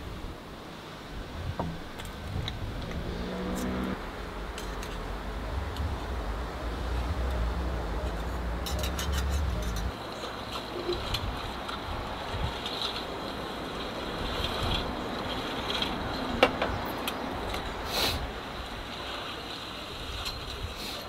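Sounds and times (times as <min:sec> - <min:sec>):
engine rumbling: 0:00.0 - 0:19.2
hum: 0:01.0 - 0:10.0.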